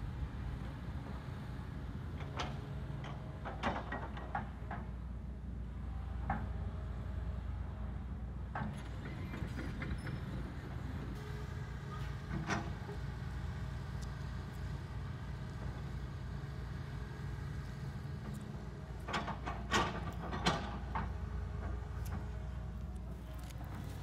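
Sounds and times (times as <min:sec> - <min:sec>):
excavator diesel engine running: 0:05.8 - 0:24.0.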